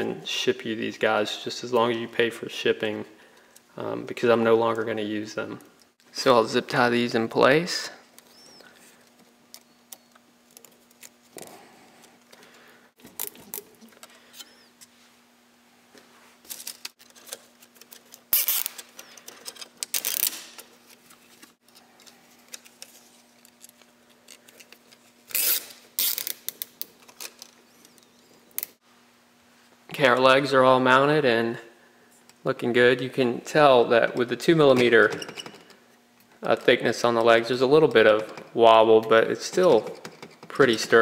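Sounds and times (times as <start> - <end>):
zip ties zipping: 18.3 - 18.9, 25.3 - 26.4.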